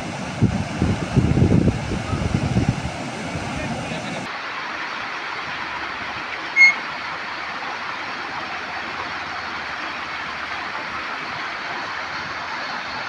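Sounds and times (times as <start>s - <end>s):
floodwater rushing: 0.0s - 13.0s
high-pitched tone: 6.6s - 6.8s.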